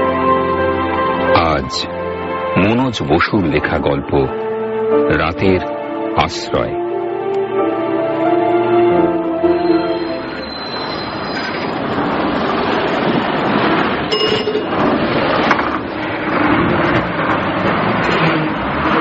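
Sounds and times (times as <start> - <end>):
bus driving: 0.0 - 19.0.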